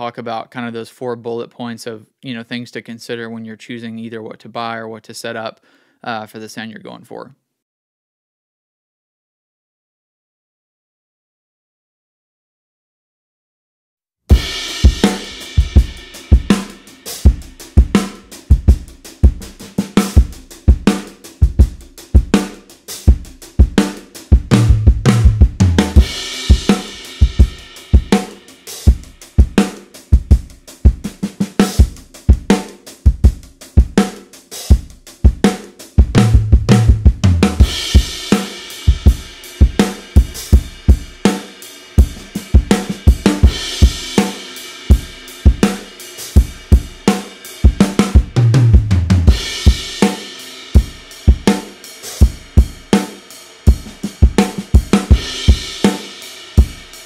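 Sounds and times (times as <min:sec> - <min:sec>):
drum kit playing a groove: 0:14.3 - 0:57.0.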